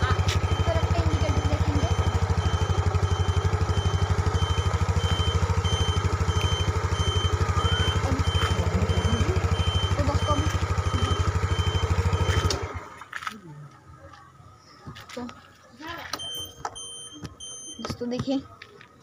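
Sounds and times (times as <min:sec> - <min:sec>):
scooter engine idling: 0:00.0 - 0:13.1
turn-indicator buzzer beeping: 0:00.1 - 0:12.6, 0:16.2 - 0:18.1.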